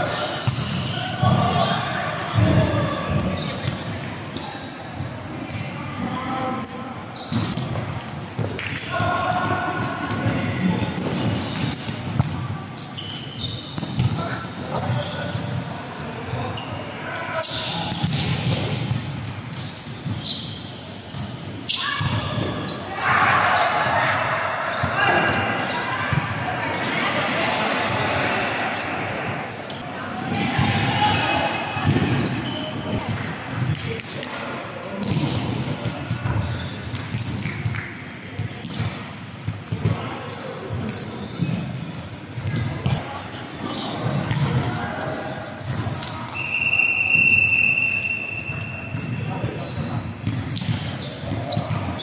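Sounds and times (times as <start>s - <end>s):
players' voices: 0.0s - 13.0s, 21.2s - 36.8s, 42.5s - 52.0s
sneakers squeaking on court floor: 0.0s - 34.0s, 34.7s - 43.0s, 43.7s - 52.0s
volleyball bouncing on hard floor: 36.2s - 39.0s.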